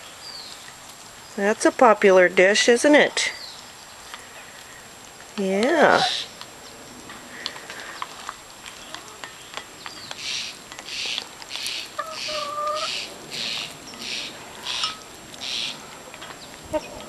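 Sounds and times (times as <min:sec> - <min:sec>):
hen calling: 0:05.8 - 0:06.4, 0:10.1 - 0:15.9
hens pecking plastic dish: 0:07.1 - 0:12.8.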